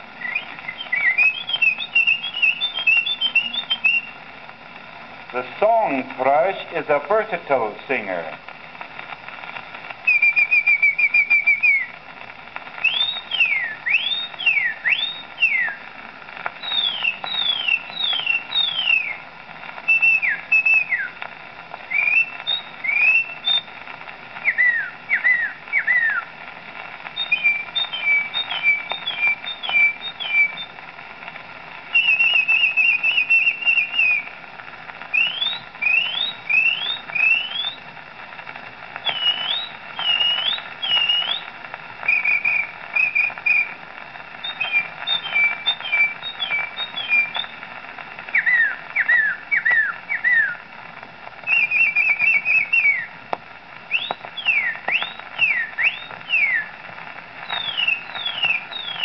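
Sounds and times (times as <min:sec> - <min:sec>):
record surface hiss: 0:00.0 - 0:59.0
man whistling birdsong imitation: 0:00.2 - 0:04.2, 0:10.1 - 0:11.9, 0:12.8 - 0:15.8, 0:16.6 - 0:19.2, 0:19.9 - 0:21.2, 0:21.9 - 0:23.7, 0:24.4 - 0:26.3, 0:27.2 - 0:30.7, 0:31.9 - 0:34.3, 0:35.1 - 0:37.8, 0:39.0 - 0:41.5, 0:42.1 - 0:43.7, 0:44.4 - 0:47.5, 0:48.3 - 0:50.6, 0:51.5 - 0:53.1, 0:53.9 - 0:56.7, 0:57.4 - 0:59.0.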